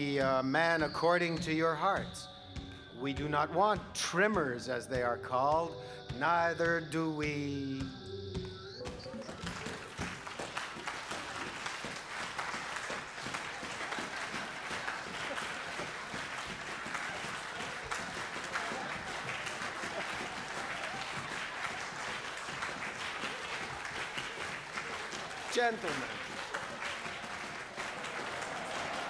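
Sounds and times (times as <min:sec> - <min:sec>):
audience applauding: 0:08.4 - 0:29.0.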